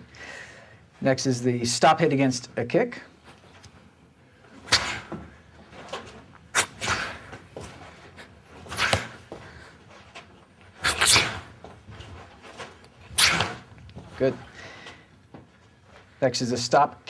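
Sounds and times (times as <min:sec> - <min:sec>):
short swish or scuff: 0:04.7 - 0:05.2, 0:06.6 - 0:07.4, 0:08.7 - 0:09.2, 0:10.8 - 0:11.6, 0:13.0 - 0:14.2
sharp kick impacts: 0:13.1 - 0:13.7.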